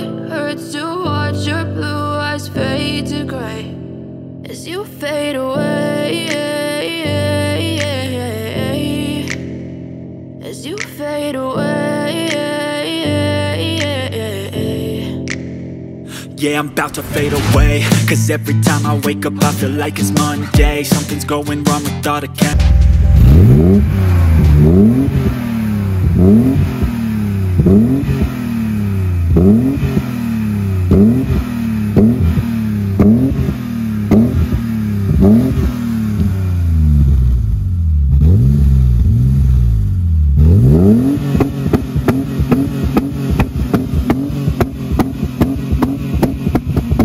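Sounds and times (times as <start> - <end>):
car engine revving: 22.5 - 47.0.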